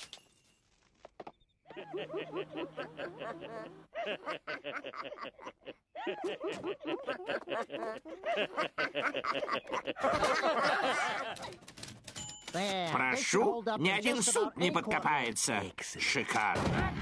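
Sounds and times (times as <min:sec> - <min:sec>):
cartoon voices laughing: 0:01.7 - 0:11.6, 0:16.1 - 0:17.0.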